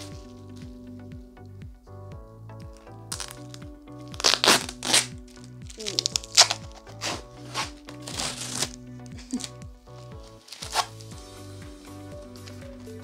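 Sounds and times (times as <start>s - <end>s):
background music with beat: 0.0s - 13.0s
plastic wrapping crinkling: 3.1s - 9.6s, 10.2s - 11.0s.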